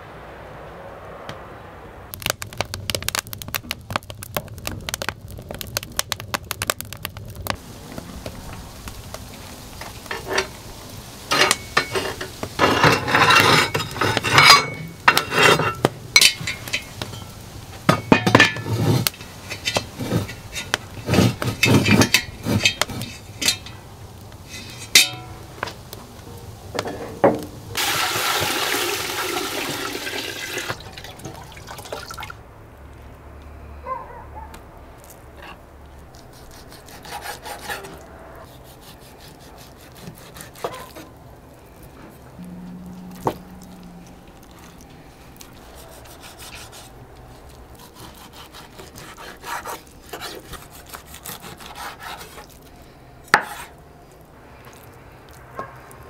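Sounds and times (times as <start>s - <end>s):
pots and dishes clattering: 11.3s - 17.3s, 17.9s - 23.8s, 24.5s - 25.4s.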